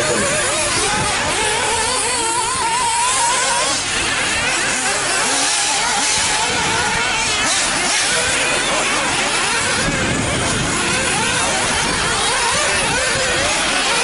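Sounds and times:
small two-stroke engines whining: 0.0s - 14.0s.

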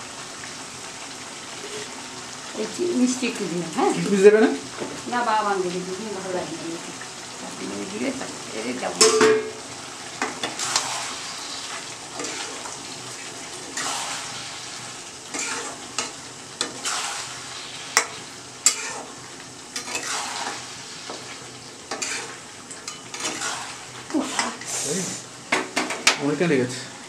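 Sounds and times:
curry sizzling: 0.0s - 27.0s
metal spoon scraping pan: 12.2s - 12.7s, 15.3s - 19.2s, 19.8s - 21.3s, 21.9s - 25.0s.

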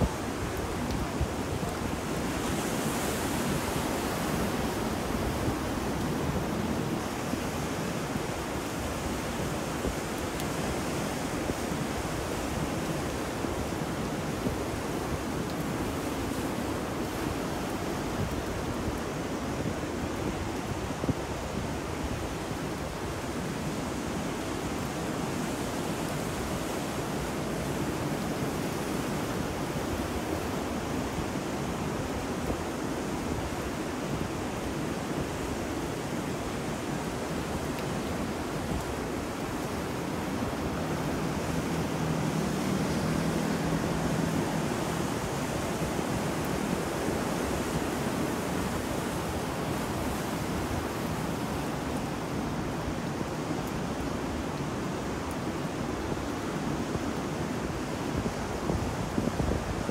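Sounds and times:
ocean surf: 0.0s - 59.9s
rain: 0.0s - 59.9s
wind: 0.0s - 59.9s.

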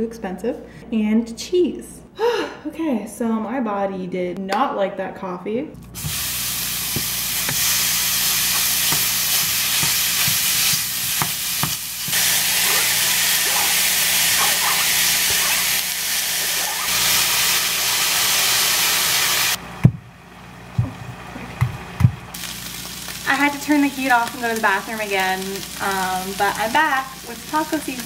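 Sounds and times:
meat sizzling in a frying pan: 6.0s - 19.6s, 22.3s - 28.0s.

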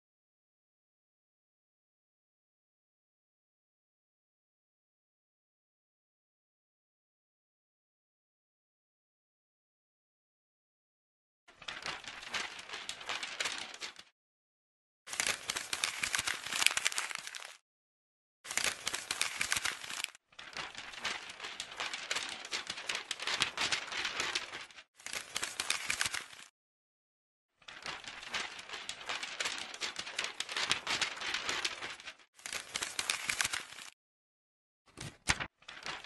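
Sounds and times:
paper crinkling and crumpling: 11.5s - 14.1s, 15.1s - 17.6s, 18.5s - 26.5s, 27.6s - 34.0s, 34.9s - 36.0s.

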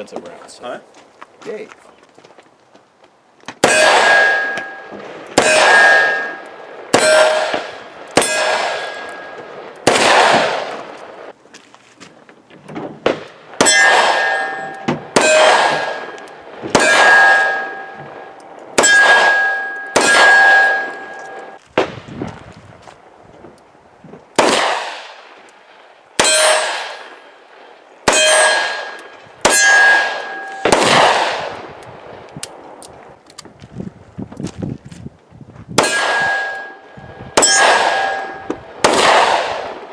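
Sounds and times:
steel plate ringing clang: 3.6s - 9.5s, 13.6s - 21.6s, 26.2s - 27.2s, 28.1s - 30.8s, 35.8s - 38.6s.

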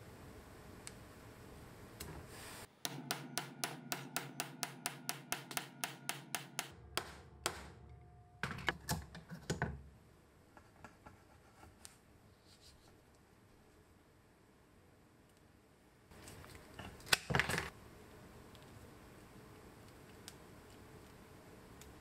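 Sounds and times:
hammer blows on metal: 2.8s - 7.8s
hammer tapping metal crimping tool: 2.8s - 9.0s.

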